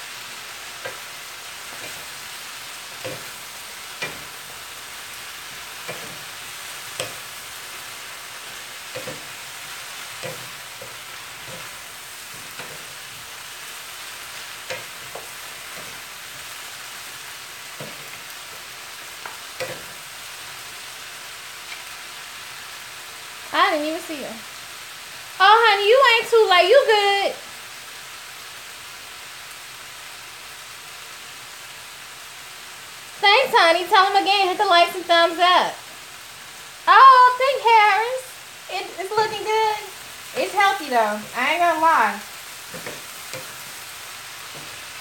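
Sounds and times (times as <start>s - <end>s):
vegetables sizzling in frying pan: 0.0s - 45.0s
wooden utensils knocking on pan: 3.0s - 4.6s, 5.6s - 7.3s, 8.9s - 9.4s, 10.2s - 13.2s, 17.8s - 18.2s, 42.7s - 43.7s.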